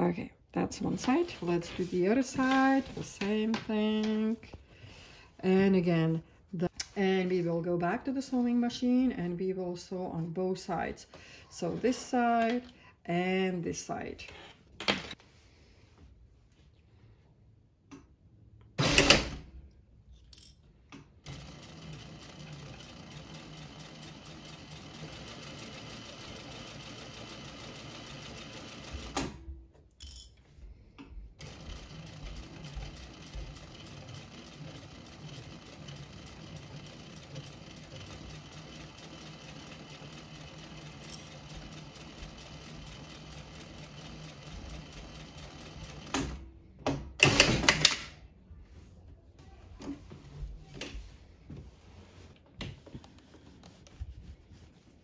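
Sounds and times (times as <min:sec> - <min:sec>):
sewing machine stitching: 0:18.8 - 0:19.4, 0:21.2 - 0:29.4, 0:31.4 - 0:46.4, 0:47.2 - 0:48.1.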